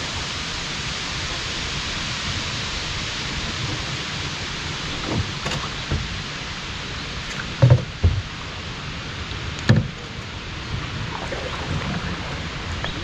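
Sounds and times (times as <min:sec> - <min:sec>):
paddle water hiss: 0:00.0 - 0:13.0
dull thumps on canoe: 0:04.9 - 0:06.2, 0:07.3 - 0:08.4, 0:09.6 - 0:10.2.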